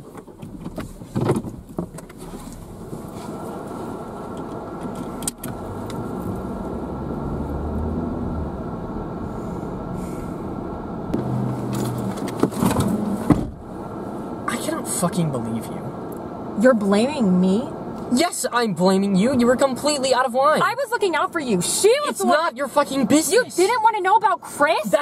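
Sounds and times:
clicks and knocks in car: 0.0s - 2.2s, 11.2s - 13.6s
car engine and road noise: 0.0s - 25.0s.

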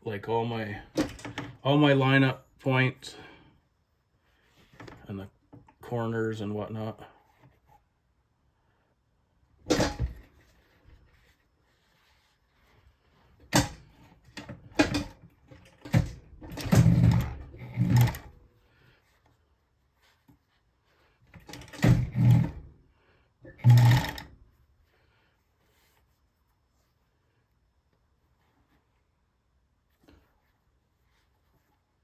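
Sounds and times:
sewing machine stitching: 15.9s - 18.3s, 21.4s - 22.6s, 23.5s - 24.3s.

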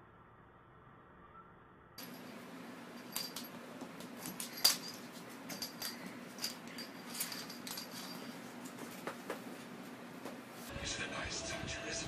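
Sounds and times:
low steady hum: 0.0s - 11.9s
metal object clinking on wooden floor: 2.0s - 9.2s.

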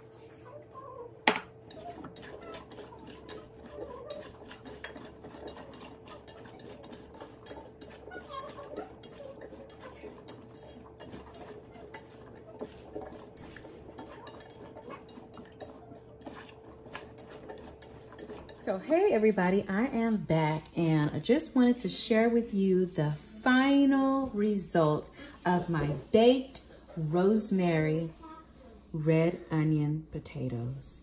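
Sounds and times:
potatoes stirred in metal pot: 1.4s - 19.6s.

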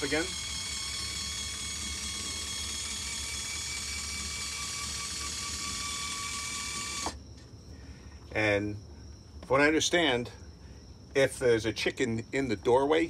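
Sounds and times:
electric gear motor whirring: 0.0s - 7.2s.

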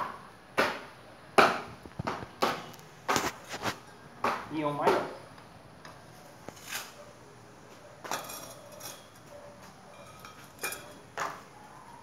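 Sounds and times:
metal tubes clinking together: 8.1s - 9.3s, 9.9s - 11.1s.

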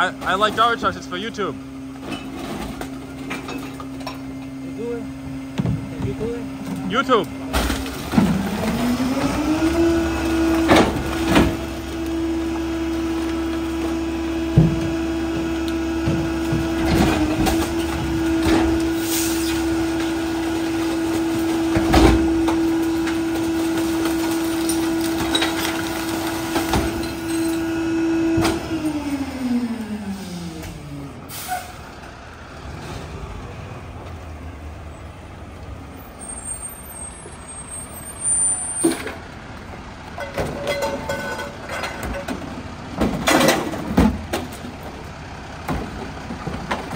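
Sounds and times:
garbage truck diesel engine revving: 7.8s - 36.0s
metal clanks and bangs: 40.2s - 44.7s.

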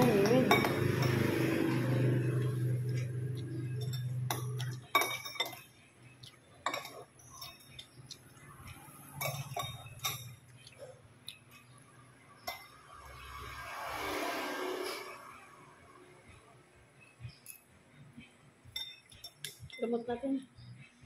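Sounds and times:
cutlery clinking on ceramic bowls: 0.0s - 11.7s, 12.4s - 12.9s, 18.7s - 20.0s.

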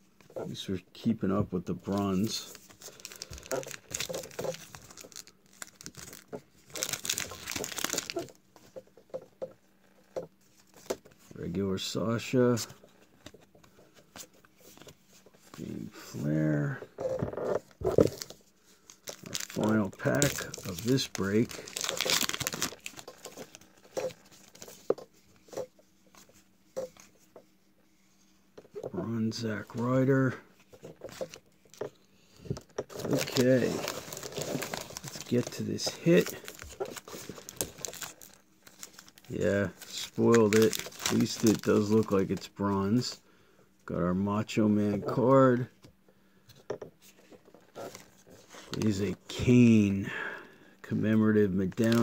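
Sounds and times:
plastic wrappers crinkling: 1.8s - 8.4s, 17.6s - 27.1s, 30.6s - 43.2s, 47.1s - 49.4s, 51.6s - 52.0s.

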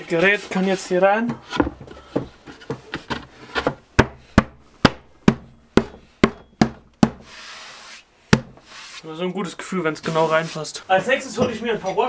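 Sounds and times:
wood rubbing: 0.0s - 12.0s
wooden knocks: 1.3s - 7.2s.

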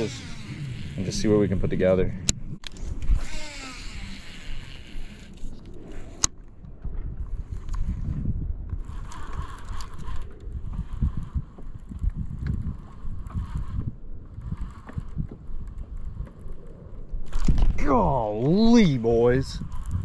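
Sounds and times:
fishing reel being cranked: 0.0s - 1.8s, 2.6s - 6.3s, 8.7s - 16.0s, 18.6s - 20.0s
wind buffeting microphone: 0.0s - 20.0s.

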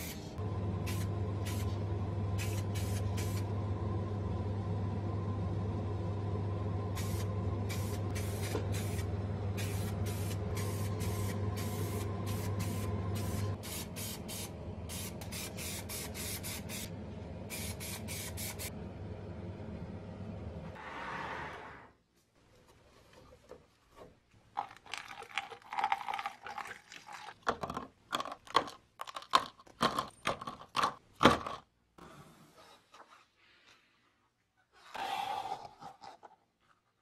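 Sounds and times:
steady low hum: 0.2s - 20.8s
spray paint can hissing: 0.8s - 1.8s, 2.4s - 3.4s, 7.0s - 16.9s, 17.5s - 18.7s.

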